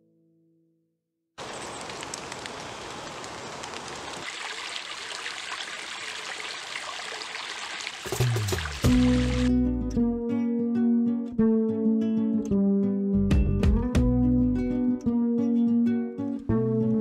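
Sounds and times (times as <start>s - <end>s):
water trickling over rocks: 1.4s - 9.5s.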